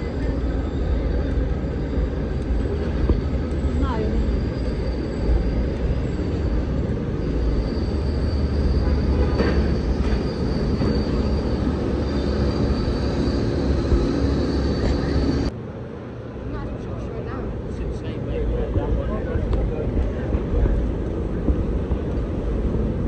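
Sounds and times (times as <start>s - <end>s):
high-pitched whine: 0.0s - 15.5s
heavy vehicle rumbling: 0.0s - 15.6s.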